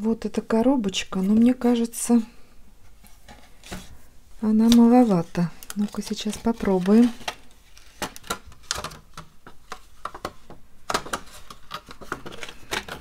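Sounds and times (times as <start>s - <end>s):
plastic box crackling and clicking: 5.6s - 13.0s.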